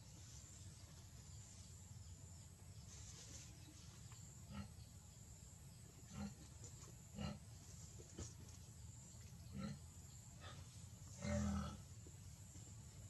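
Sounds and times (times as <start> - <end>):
faint animal grunts: 4.4 - 4.8, 6.0 - 7.6, 9.4 - 12.0.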